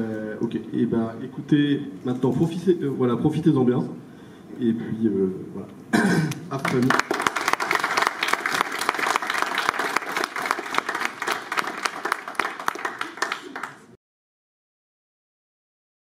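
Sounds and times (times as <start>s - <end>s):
audience applauding: 6.5s - 14.0s.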